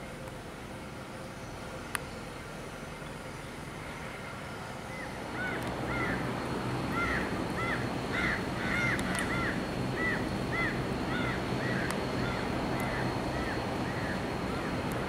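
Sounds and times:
distant jet engine rumble: 0:00.0 - 0:15.0
bird calling: 0:04.8 - 0:06.3, 0:06.9 - 0:14.8.

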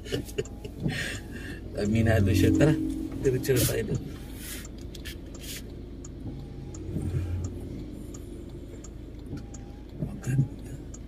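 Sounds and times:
windshield wiper swishing: 0:00.0 - 0:02.5
car engine and tyres on wet road: 0:00.0 - 0:11.0.

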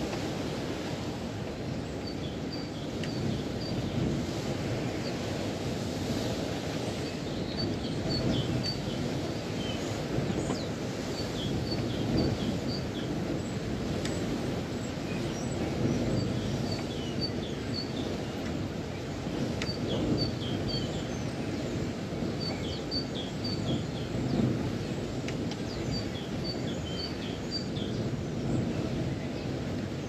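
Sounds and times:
steady wind: 0:00.0 - 0:30.0
small birds chirping: 0:07.0 - 0:30.0.

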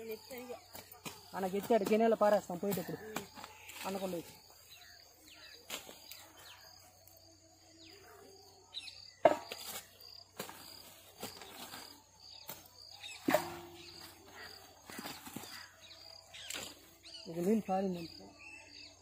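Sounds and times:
small birds chirping: 0:00.0 - 0:19.0
hoe striking dry soil: 0:09.2 - 0:10.6, 0:12.4 - 0:15.6.

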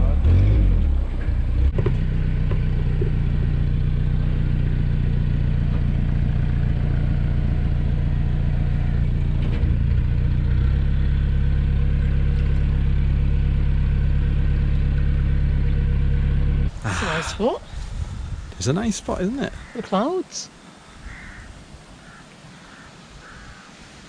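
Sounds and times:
boat diesel engine drone: 0:00.0 - 0:17.6.

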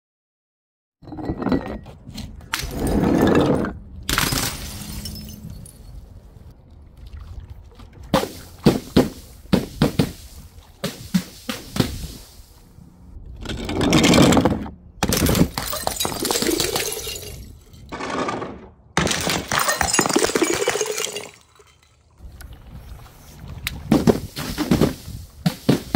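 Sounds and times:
glass bottles smashing: 0:02.7 - 0:06.0, 0:15.0 - 0:17.9, 0:19.0 - 0:22.1.

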